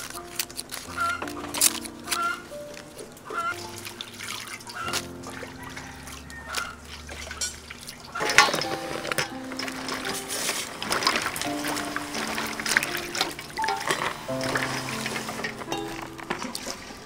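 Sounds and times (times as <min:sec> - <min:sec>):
soft background music: 0:00.0 - 0:17.0
water splashing and dripping: 0:00.0 - 0:17.0.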